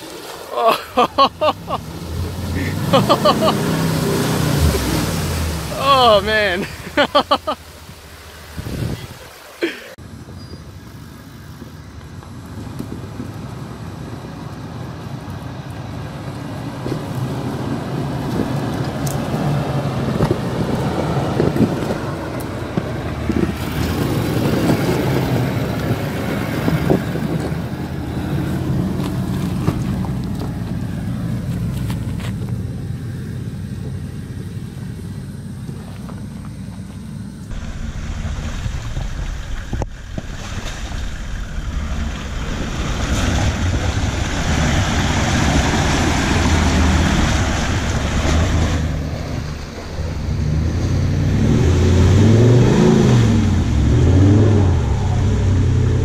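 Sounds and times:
diesel engine at low revs: 0.0 - 56.0
wind noise on microphone: 7.8 - 9.3, 16.7 - 30.0.

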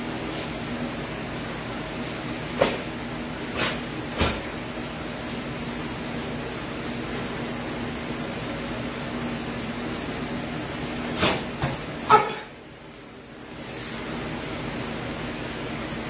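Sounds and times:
feet landing on foam mats: 3.6 - 4.5.

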